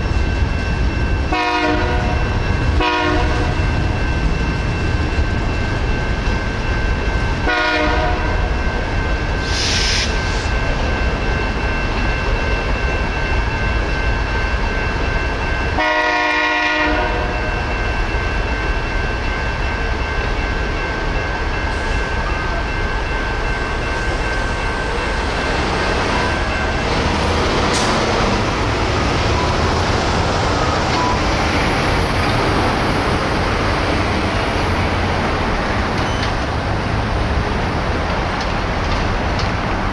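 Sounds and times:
crossing bells ringing: 0.0 - 39.9
freight train rumbling: 0.0 - 39.9
train horn: 1.3 - 2.2, 2.8 - 3.6, 7.4 - 8.4, 15.8 - 17.4
road traffic noise: 9.3 - 12.0, 21.7 - 39.9.

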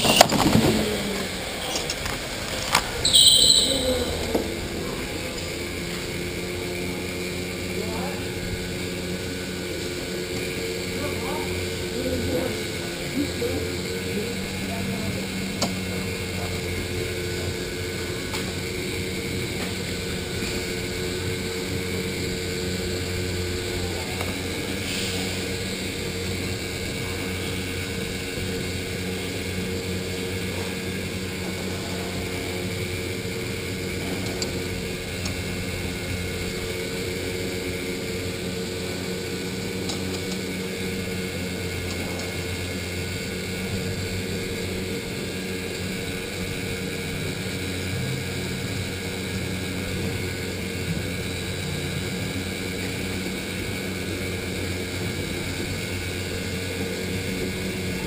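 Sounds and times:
electric go-kart motor whining: 0.0 - 58.0.

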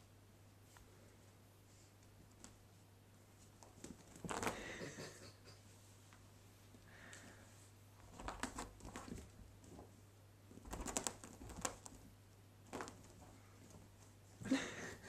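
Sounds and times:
fabric rustling: 1.7 - 4.8.

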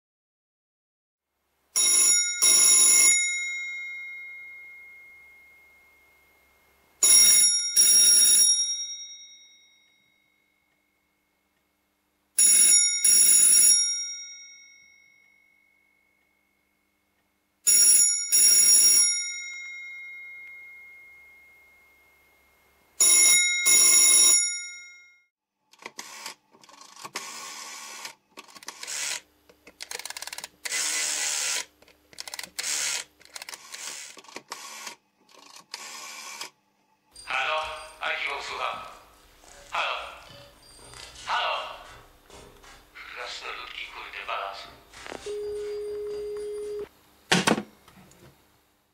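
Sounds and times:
telephone bell ringing: 1.8 - 6.4, 7.0 - 10.4, 12.4 - 15.6, 17.7 - 22.4, 23.0 - 25.2, 45.3 - 46.9
rotary telephone dial whirring: 25.8 - 36.6.

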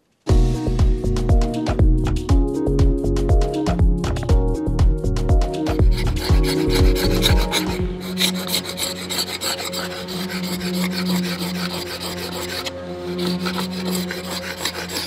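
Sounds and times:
paint scraper rasping: 5.7 - 15.0.

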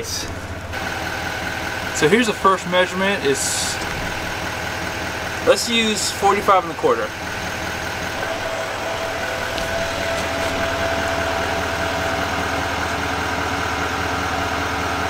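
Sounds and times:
pickup truck engine idling: 0.0 - 15.0
electric motor whine: 6.5 - 15.0.

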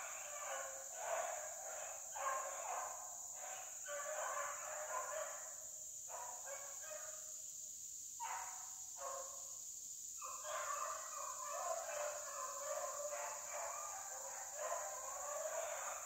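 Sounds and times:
hounds baying: 0.0 - 5.5, 10.2 - 16.0.

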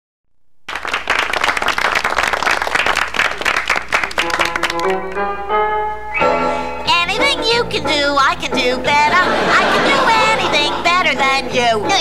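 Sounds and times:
audience applauding: 0.7 - 5.2
musical intro: 4.2 - 11.9.

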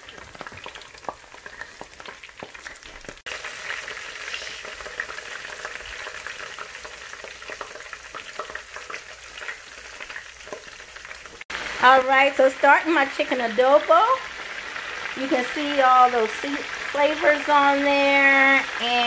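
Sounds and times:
small pops and crackles: 0.0 - 3.3
herbs sizzling in a frying pan: 0.0 - 19.0.

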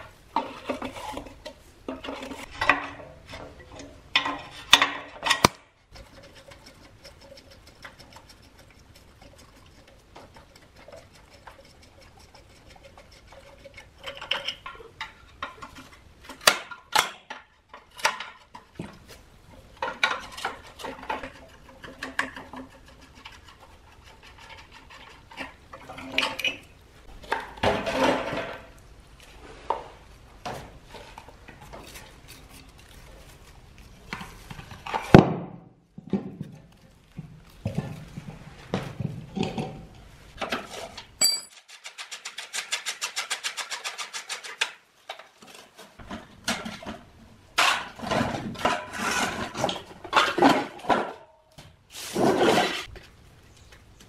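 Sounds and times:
wrench clinking and scraping on metal: 40.4 - 44.6.

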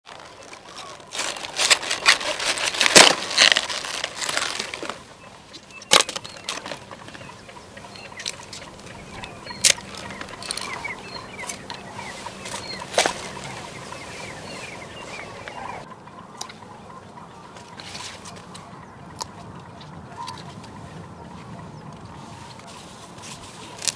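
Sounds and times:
birds chirping: 0.1 - 23.9.

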